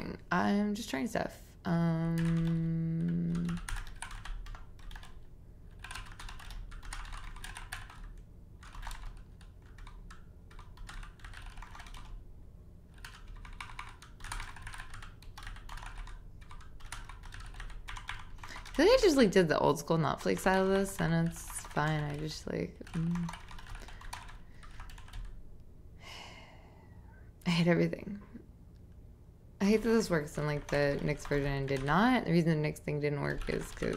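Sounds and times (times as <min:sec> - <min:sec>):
keyboard typing: 0:02.0 - 0:12.2, 0:12.9 - 0:25.4, 0:29.8 - 0:32.4, 0:33.1 - 0:33.9.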